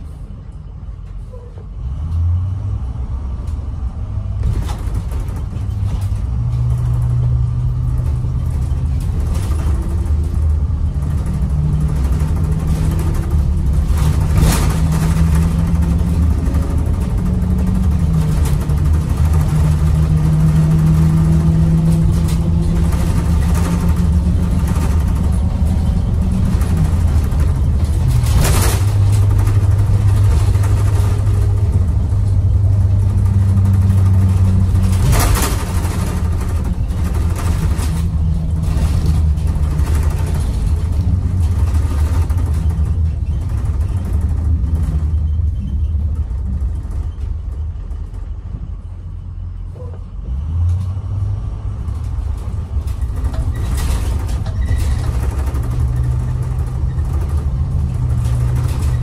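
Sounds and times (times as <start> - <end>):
diesel bus engine accelerating: 0.0 - 59.0.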